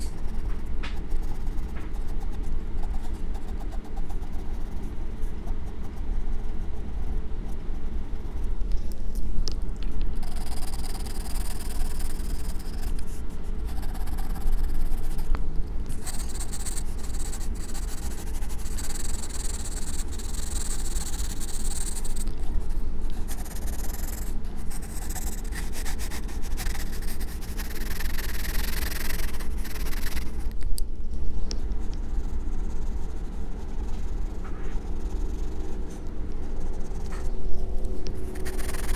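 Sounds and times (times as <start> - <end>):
pencil shading on paper: 38.3 - 38.9.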